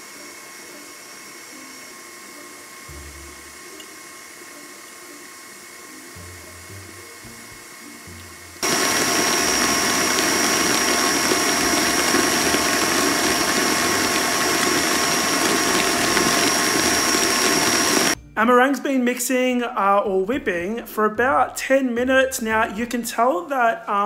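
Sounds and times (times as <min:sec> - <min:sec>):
stand mixer whirring: 0:08.6 - 0:18.2.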